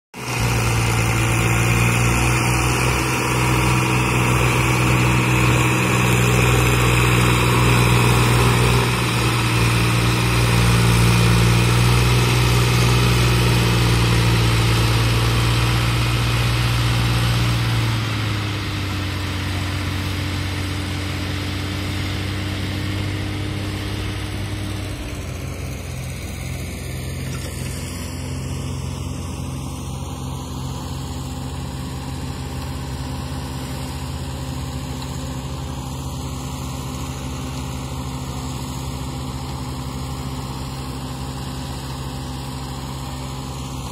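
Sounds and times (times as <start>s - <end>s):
diesel tractor engine under load: 0.1s - 43.9s.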